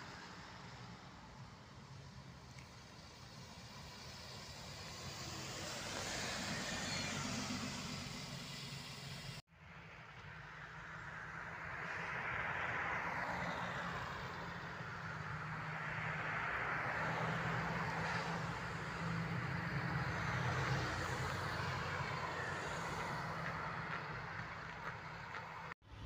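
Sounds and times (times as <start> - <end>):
tyre hiss on wet road: 2.3 - 9.4.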